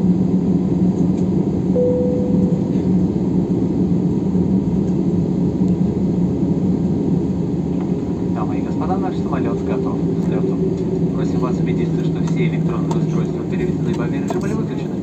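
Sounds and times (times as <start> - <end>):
airplane cabin rumble: 0.0 - 15.0
brief steady tone: 1.8 - 3.0.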